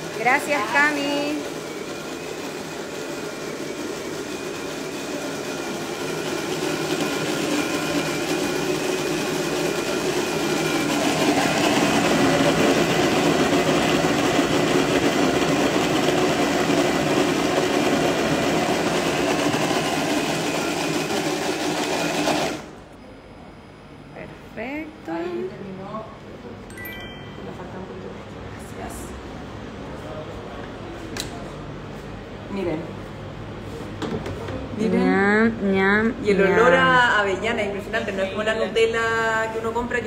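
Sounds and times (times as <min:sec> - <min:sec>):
kitchen blender motor whirring: 0:00.0 - 0:22.8.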